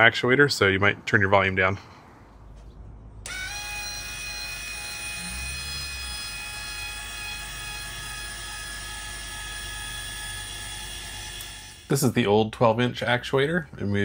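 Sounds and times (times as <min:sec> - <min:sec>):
linear actuator motor whine: 0:03.2 - 0:11.9.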